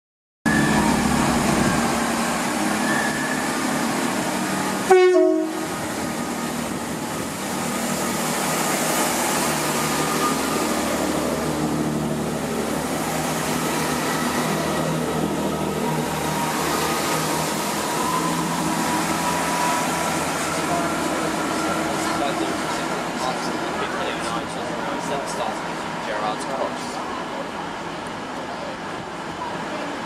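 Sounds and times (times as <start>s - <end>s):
diesel train engines passing: 0.5s - 30.0s
train horn blast: 4.8s - 5.9s.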